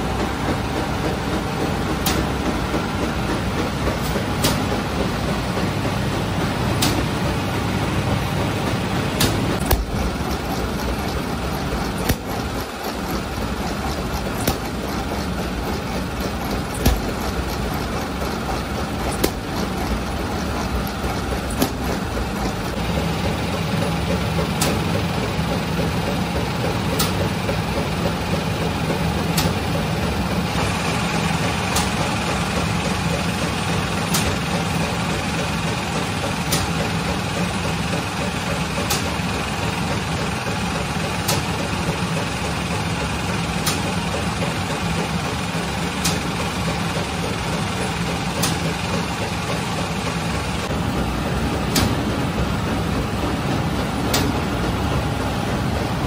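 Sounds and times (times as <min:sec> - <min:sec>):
oven machinery humming: 0:00.0 - 0:56.0
sharp click: 0:02.0 - 0:02.3, 0:06.8 - 0:07.1, 0:09.2 - 0:10.0, 0:48.4 - 0:48.6, 0:51.7 - 0:52.0, 0:54.1 - 0:54.4.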